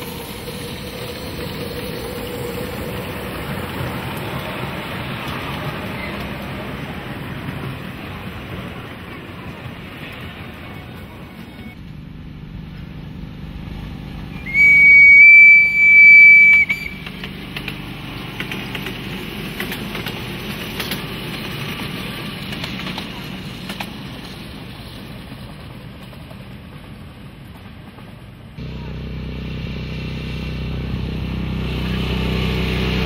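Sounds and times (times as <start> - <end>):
wheels clicking over rails: 0.0 - 11.8, 13.7 - 28.7
low running hum: 11.8 - 18.2
train horn blasts: 14.3 - 17.0.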